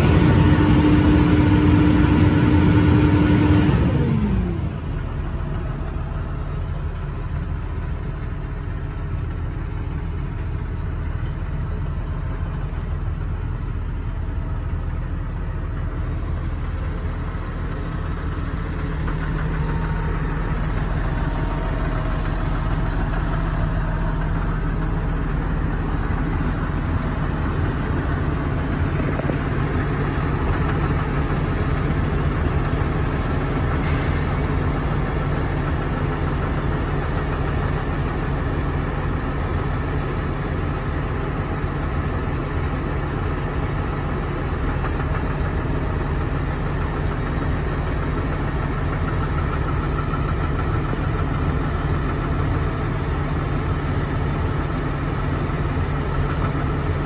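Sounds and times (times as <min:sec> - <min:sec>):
tractor diesel engine idling: 0:00.0 - 0:57.0
short hiss: 0:33.8 - 0:34.6.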